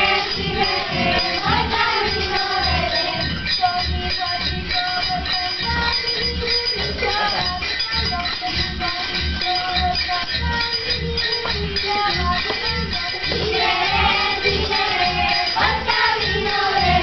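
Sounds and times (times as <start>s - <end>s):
jingling percussion: 0.0s - 17.0s
steady low beat: 0.0s - 17.0s.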